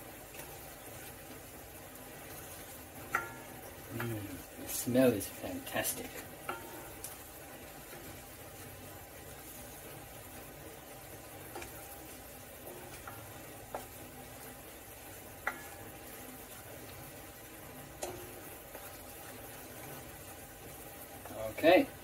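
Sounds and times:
faint steady sizzle: 0:00.0 - 0:22.0
spoon knocking against pot: 0:03.1 - 0:03.5.

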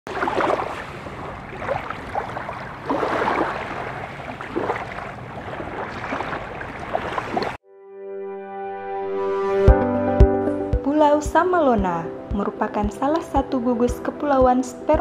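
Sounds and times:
small waves lapping on shore: 0:00.1 - 0:07.6.

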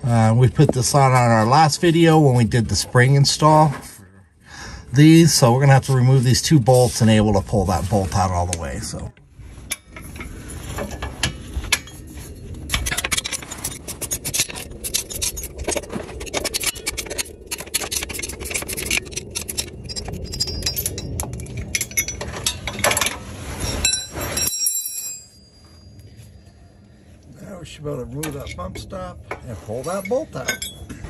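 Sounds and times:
hand tools clicking on metal: 0:12.7 - 0:23.2
ringing metal clink: 0:19.4 - 0:23.1, 0:23.7 - 0:26.4, 0:29.8 - 0:31.0.

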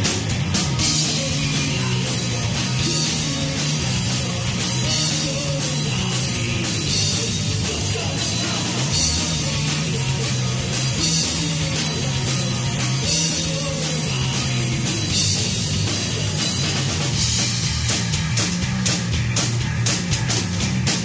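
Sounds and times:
distorted electric guitar: 0:00.0 - 0:21.0
drum kit with crashing cymbals: 0:00.0 - 0:21.0
electric bass: 0:00.0 - 0:21.0
person singing lead: 0:00.8 - 0:15.4.

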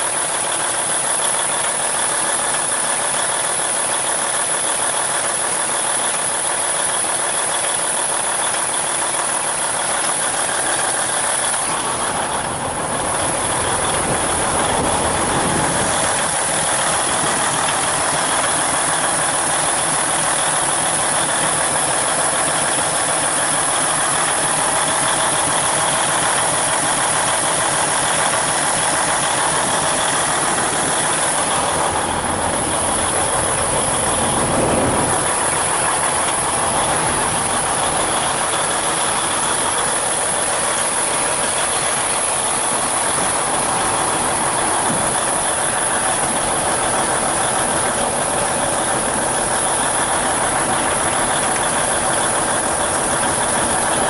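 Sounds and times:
diesel truck engine idling: 0:00.0 - 0:54.0.

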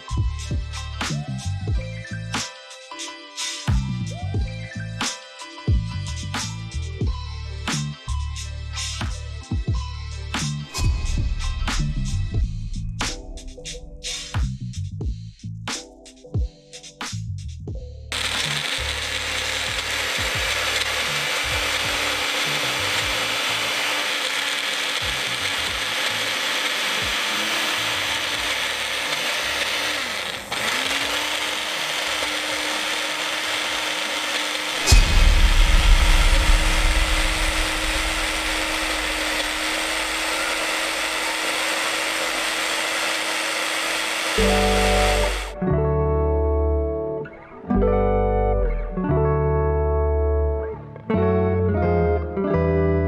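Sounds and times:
electric blender whirring: 0:18.1 - 0:45.6.

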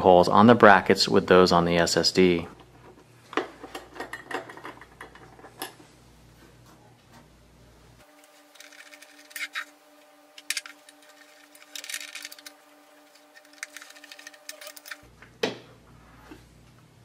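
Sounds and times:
faint steady hum: 0:00.0 - 0:17.0
screwdriver clicking and scraping metal: 0:08.2 - 0:09.8, 0:10.4 - 0:15.0.

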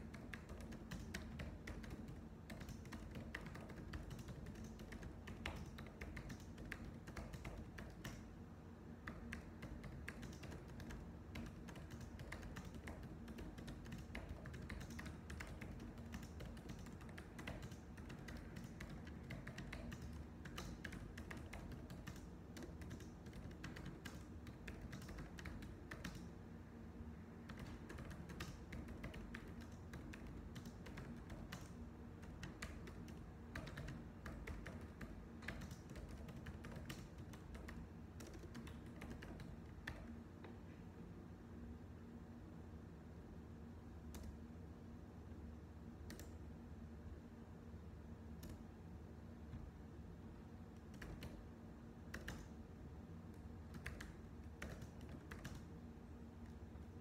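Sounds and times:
computer keyboard typing: 0:00.0 - 0:08.3, 0:09.0 - 0:26.3, 0:27.4 - 0:40.2, 0:46.1 - 0:46.4, 0:50.8 - 0:51.4, 0:52.1 - 0:52.6, 0:53.3 - 0:55.8.

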